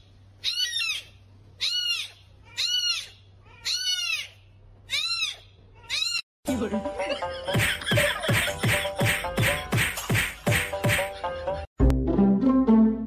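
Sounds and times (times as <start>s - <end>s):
kitten mewing: 0.4s - 6.2s.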